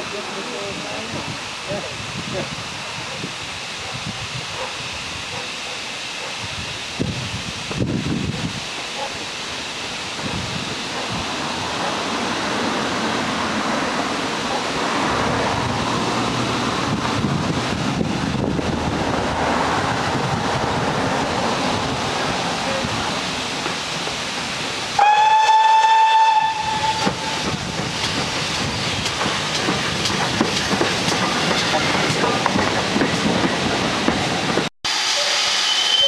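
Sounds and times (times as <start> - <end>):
steam locomotive approaching: 0.0 - 36.0
wind on microphone: 0.7 - 5.4, 6.4 - 8.7, 15.0 - 23.2
steam whistle blast: 25.0 - 27.4, 34.9 - 36.0.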